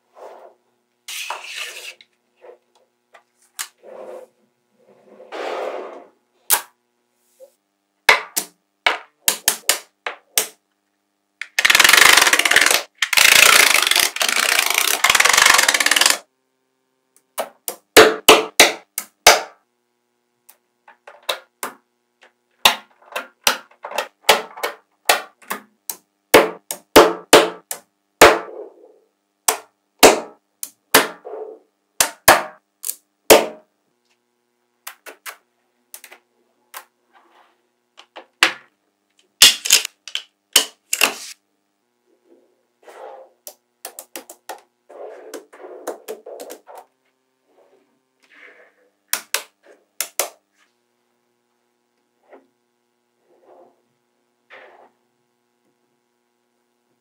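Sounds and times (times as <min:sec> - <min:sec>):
magnetic balls clicking together: 0:11.4 - 0:16.2.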